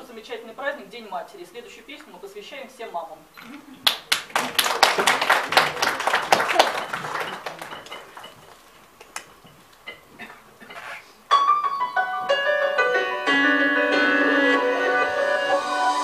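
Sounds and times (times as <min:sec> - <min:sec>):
scattered claps: 0:03.8 - 0:09.9
instrumental karaoke backing track: 0:11.4 - 0:16.0.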